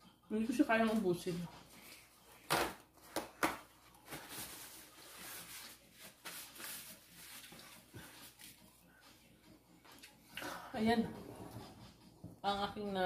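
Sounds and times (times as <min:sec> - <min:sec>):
paper napkin rustling: 0:03.8 - 0:08.6.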